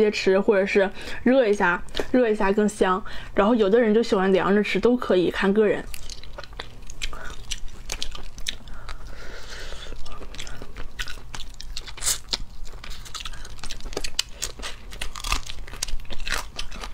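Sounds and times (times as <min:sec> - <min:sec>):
biting and chewing: 0:05.9 - 0:16.9.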